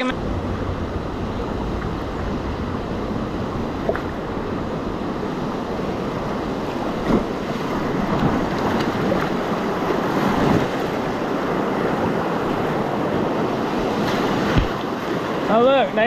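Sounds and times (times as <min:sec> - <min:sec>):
wind buffeting microphone: 0:00.0 - 0:15.6
paddle splashes: 0:01.7 - 0:15.5.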